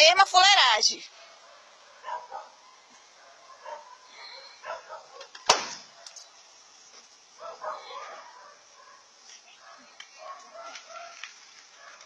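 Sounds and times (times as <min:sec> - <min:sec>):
dog barking: 0:01.2 - 0:05.3, 0:07.4 - 0:12.0
loud bang on car body: 0:05.4 - 0:05.8.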